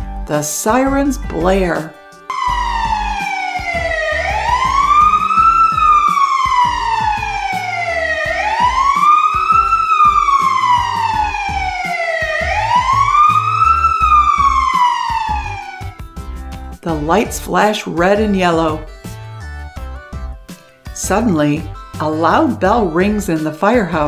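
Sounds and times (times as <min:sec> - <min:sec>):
light background music: 0:00.0 - 0:24.0
wailing emergency siren: 0:02.3 - 0:16.2.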